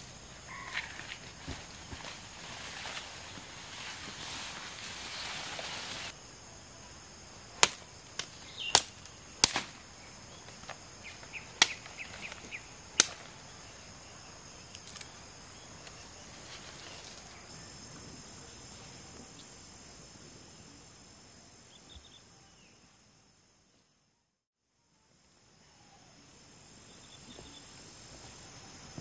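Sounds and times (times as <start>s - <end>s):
foliage rustling: 0.0s - 6.2s, 7.4s - 19.4s
insects shrilling: 0.0s - 22.7s
blade chopping sapling: 7.6s - 9.8s, 10.4s - 13.4s.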